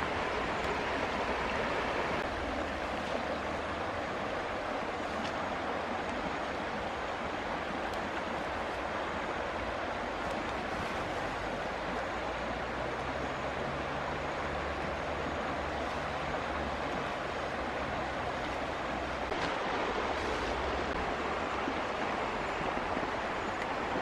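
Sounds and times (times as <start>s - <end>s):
river rushing over rocks: 0.0s - 24.0s.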